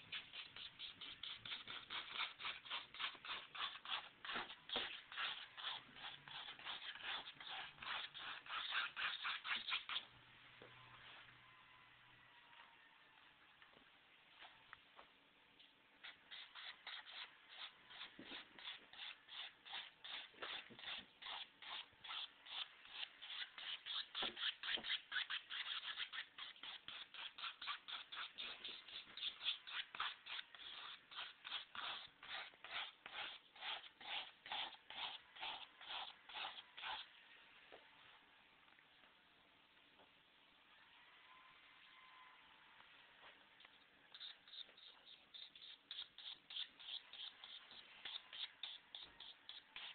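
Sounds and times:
paintbrush scrubbing on canvas: 0:00.1 - 0:10.1, 0:16.0 - 0:37.1, 0:44.1 - 0:49.9.

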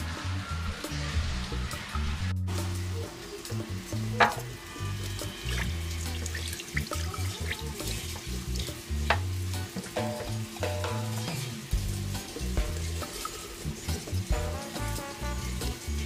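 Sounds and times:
music with heavy bass: 0:00.0 - 0:16.0.

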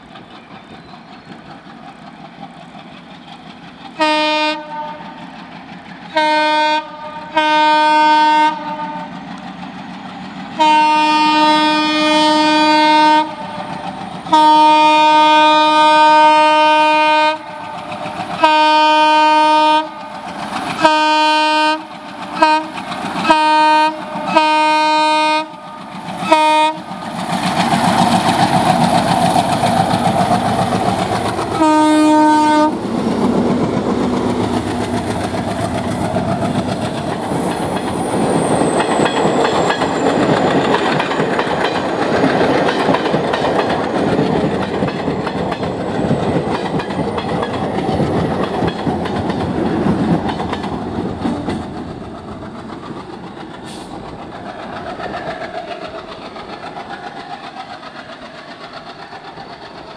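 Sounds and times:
locomotive horn blasts: 0:04.0 - 0:05.2, 0:06.1 - 0:09.1, 0:10.6 - 0:13.7, 0:14.3 - 0:20.1, 0:20.8 - 0:26.9, 0:31.6 - 0:32.8
locomotive engine running hard: 0:16.7 - 0:59.9
wheels clattering over rails: 0:32.8 - 0:59.9.

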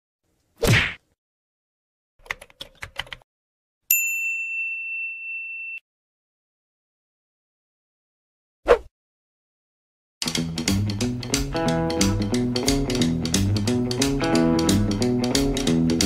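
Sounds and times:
notification bell ding: 0:03.9 - 0:05.8.

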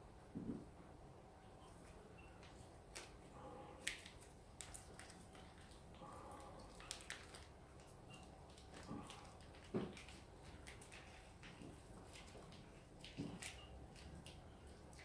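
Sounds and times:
plastic bag crinkling and squishing: 0:03.8 - 0:15.0.

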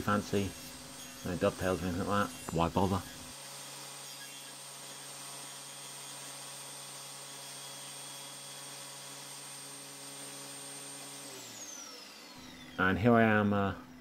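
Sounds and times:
table saw motor humming: 0:00.0 - 0:14.0.

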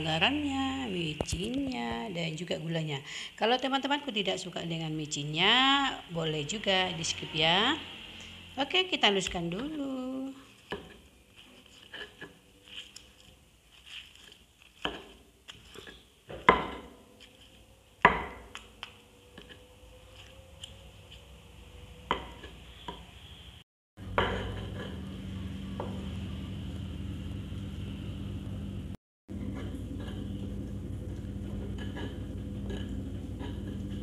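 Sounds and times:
low hum: 0:24.0 - 0:34.0.

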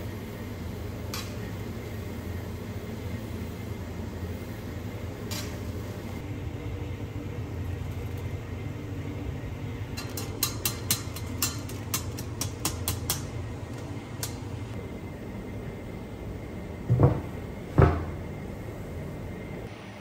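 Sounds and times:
low kitchen hum: 0:00.0 - 0:20.0
spoon tapping steel pot: 0:10.0 - 0:13.4.

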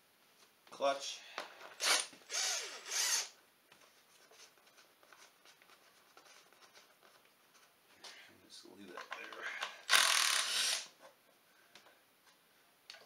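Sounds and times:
cordless drill bursts: 0:01.8 - 0:03.4, 0:09.9 - 0:10.9.

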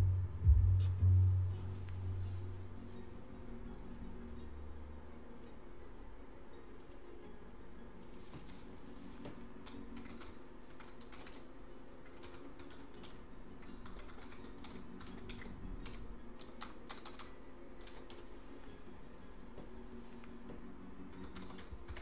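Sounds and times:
steady low hum: 0:00.0 - 0:08.0.

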